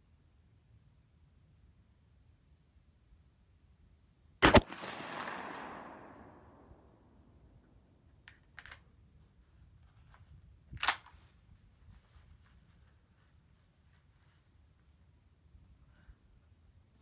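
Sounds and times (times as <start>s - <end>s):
shotgun shot with echo: 4.4s - 7.0s.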